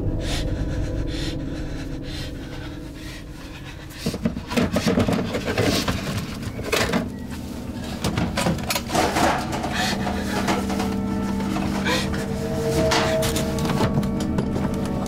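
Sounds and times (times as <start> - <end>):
low sustained music tone: 0.0 - 15.0
hand rummaging on wooden shelf: 3.8 - 15.0.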